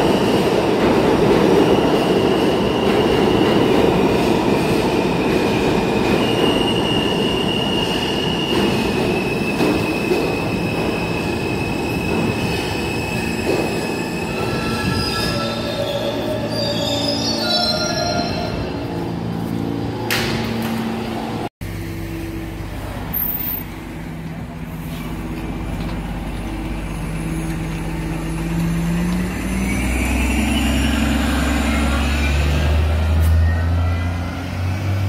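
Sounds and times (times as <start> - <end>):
subway train running: 0.0 - 35.0.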